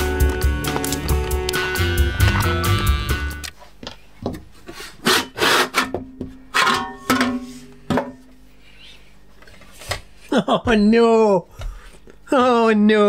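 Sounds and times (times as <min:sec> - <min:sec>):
music: 0:00.0 - 0:03.6.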